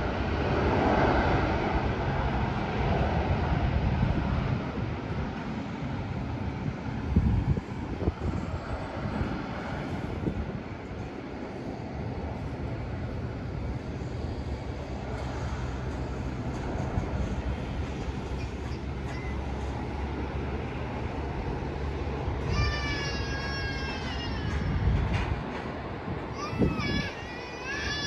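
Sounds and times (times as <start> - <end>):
jet engines rumbling: 0.0 - 28.0.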